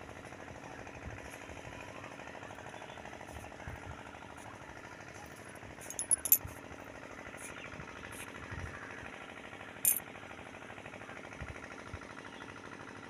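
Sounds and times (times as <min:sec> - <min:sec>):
sharp clicks and clinks: 0:05.8 - 0:06.6, 0:09.8 - 0:10.0.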